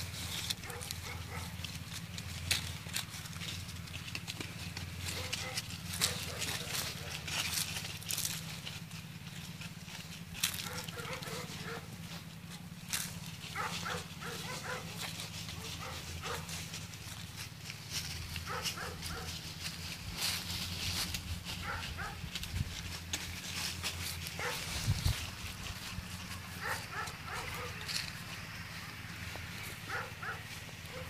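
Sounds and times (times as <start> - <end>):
dry leaves crackling: 0.0 - 31.0
dog barking: 0.6 - 1.6, 5.1 - 7.1, 10.6 - 11.9, 13.5 - 15.0, 15.6 - 16.5, 18.4 - 19.4, 21.6 - 22.2, 24.4 - 24.7, 26.6 - 27.9, 29.9 - 31.0.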